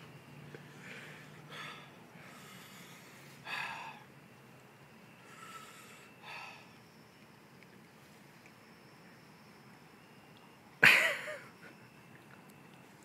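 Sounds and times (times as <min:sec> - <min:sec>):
man breathing hard: 0:00.6 - 0:04.1, 0:05.2 - 0:06.8.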